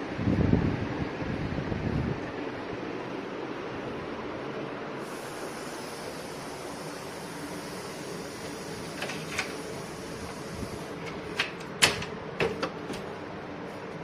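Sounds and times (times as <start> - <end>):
steady hiss: 4.9 - 11.0.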